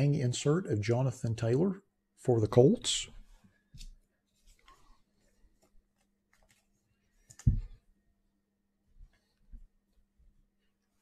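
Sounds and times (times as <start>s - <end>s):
trading cards rustling: 4.4s - 7.5s
thump: 7.4s - 7.8s.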